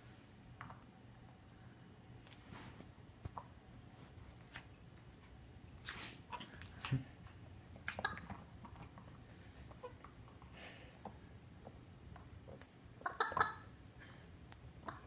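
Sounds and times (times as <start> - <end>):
short hiss: 5.8 - 6.3.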